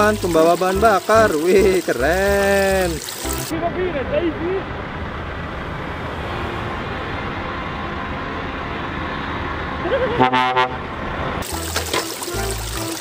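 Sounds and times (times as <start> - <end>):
truck engine passing: 1.1 - 12.9
air horn blast: 10.2 - 10.8.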